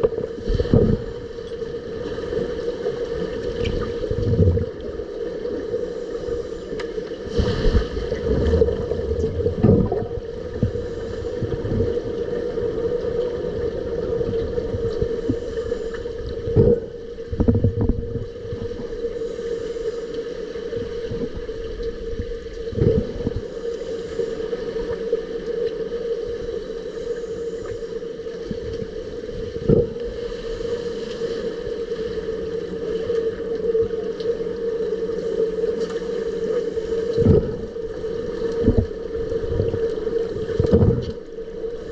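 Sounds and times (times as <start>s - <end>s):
underwater hum: 0.0s - 41.9s
bubbly rushing underwater: 3.6s - 4.8s, 7.4s - 11.9s.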